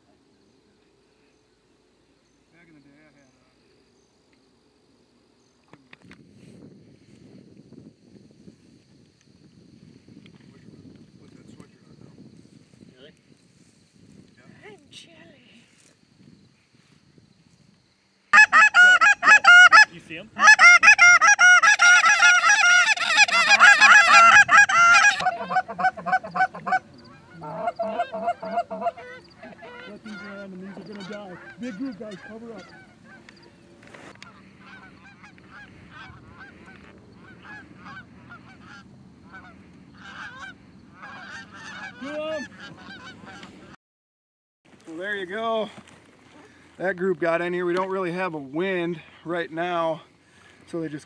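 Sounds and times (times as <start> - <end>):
geese honking: 18.3 - 43.8.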